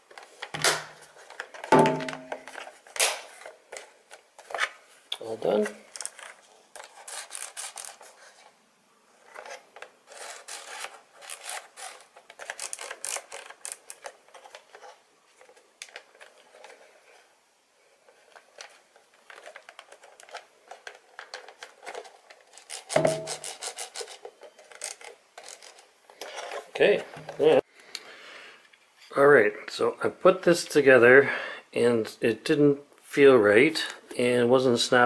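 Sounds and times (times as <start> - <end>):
plastic rubbing and scraping: 9.2 - 17.3, 18.1 - 27.5.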